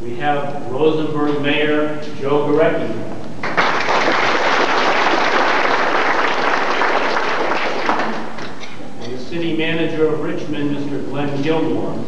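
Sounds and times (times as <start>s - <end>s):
audience applauding: 3.4s - 8.6s.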